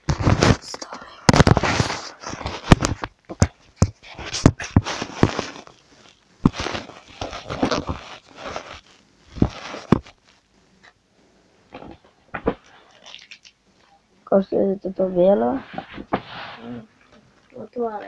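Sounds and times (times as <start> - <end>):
plastic wrapper crinkling: 4.2 - 10.4, 11.8 - 14.0.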